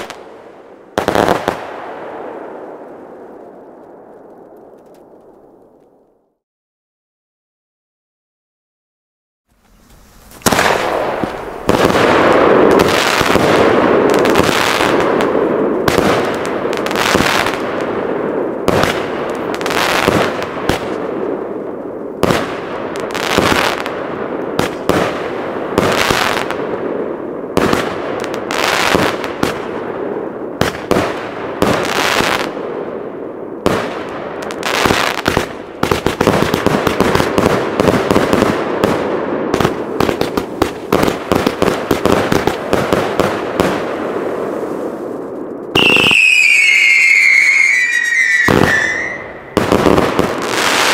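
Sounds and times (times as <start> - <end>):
firework crackle: 0.0 - 6.0, 9.5 - 50.9
firework aerial bursts: 9.5 - 21.1, 33.7 - 50.9.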